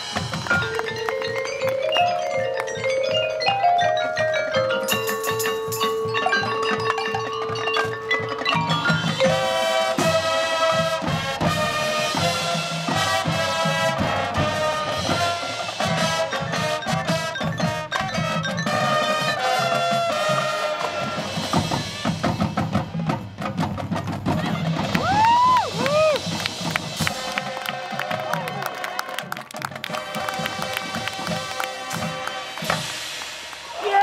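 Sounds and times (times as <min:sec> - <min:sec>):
mallet percussion: 0:00.0 - 0:28.6, 0:29.5 - 0:34.0
marching drums: 0:00.0 - 0:34.0
brass chords: 0:09.0 - 0:22.7, 0:26.4 - 0:33.6.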